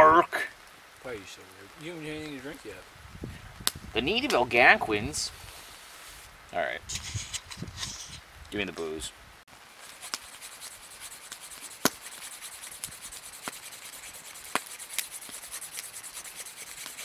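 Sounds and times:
knife scraping wood: 9.8 - 17.0.

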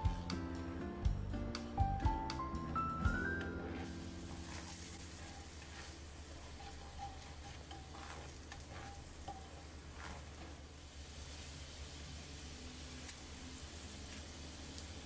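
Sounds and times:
butter and oil sizzling in pan: 2.6 - 15.0
spatula scraping pan: 3.1 - 10.7.

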